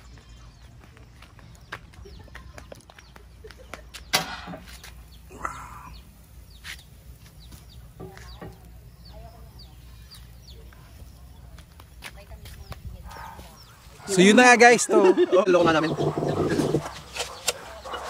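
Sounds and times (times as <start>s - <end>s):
chickens clucking: 13.1s - 18.0s.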